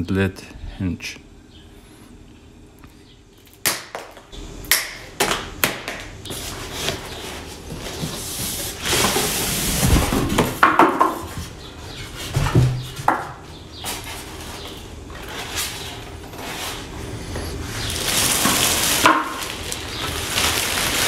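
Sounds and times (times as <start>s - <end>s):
plastic wrap rustling: 13.9s - 21.0s.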